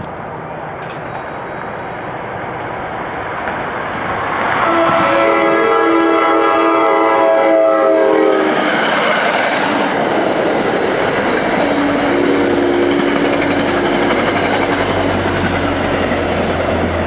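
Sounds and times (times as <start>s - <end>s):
train wheels clattering on rails: 0.0s - 5.6s, 8.3s - 17.0s
diesel locomotive low hum: 0.0s - 17.0s
train horn chord: 4.6s - 8.6s, 11.6s - 14.2s.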